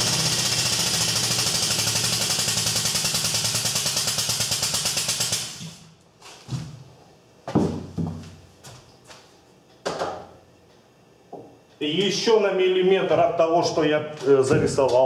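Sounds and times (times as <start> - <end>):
air tool chattering: 0.0 - 5.9.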